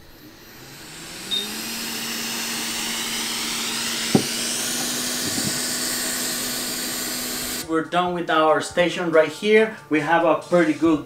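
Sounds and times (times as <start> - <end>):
hot air fan blowing hiss: 0.0 - 7.6.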